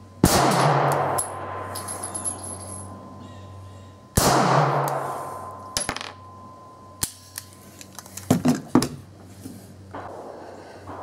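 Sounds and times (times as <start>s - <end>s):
light metallic clinks: 1.2s - 3.0s
pistol shot ringing: 4.2s - 5.1s.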